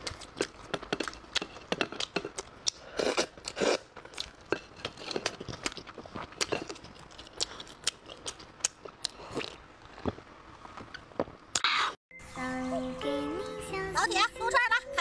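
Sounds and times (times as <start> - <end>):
chewing and mouth noises: 0.0 - 10.2.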